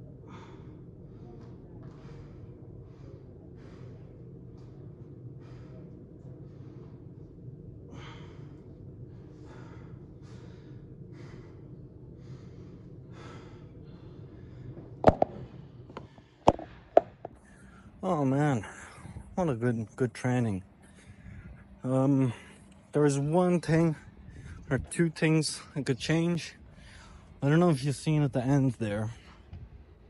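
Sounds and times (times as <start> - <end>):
man breathing hard: 0.0 - 19.4, 20.7 - 23.0, 23.9 - 24.9, 26.6 - 27.4
steady low hum: 0.0 - 30.0.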